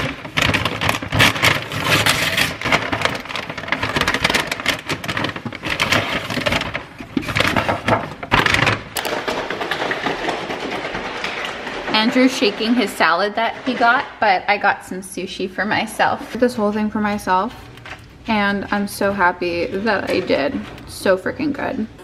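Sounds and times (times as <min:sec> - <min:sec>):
paper bag crinkling: 0:00.0 - 0:14.2.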